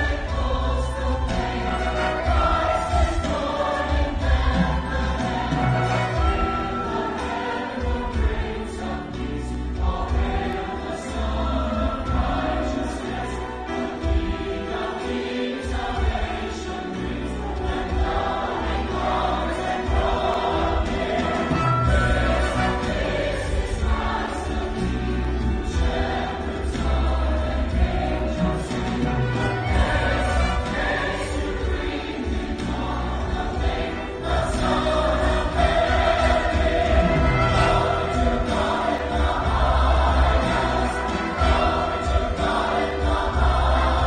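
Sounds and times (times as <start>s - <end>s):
choir singing: 0.0s - 44.0s
orchestra playing: 0.0s - 44.0s.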